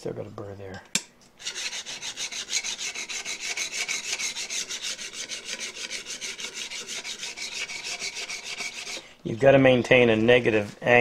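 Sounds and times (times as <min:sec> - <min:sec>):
blade rubbing on sharpening plate: 0:01.4 - 0:09.1.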